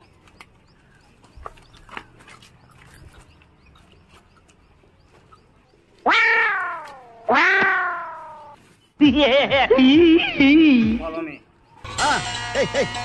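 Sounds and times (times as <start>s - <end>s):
cat meowing: 6.0s - 8.6s.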